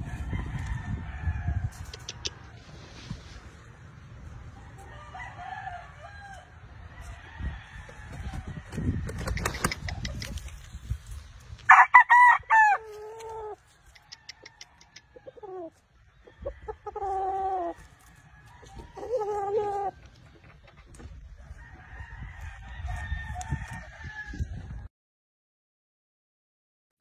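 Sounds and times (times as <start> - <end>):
roosters crowing: 0.0 - 2.2, 4.4 - 9.5, 11.6 - 20.4, 21.1 - 24.9.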